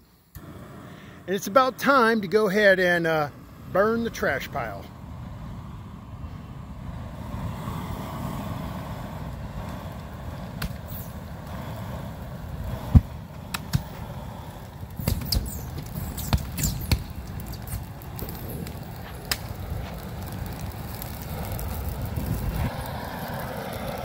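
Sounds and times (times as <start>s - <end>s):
flamethrower rushing rumble: 0.3s - 24.0s
fire popping and cracking: 9.0s - 24.0s.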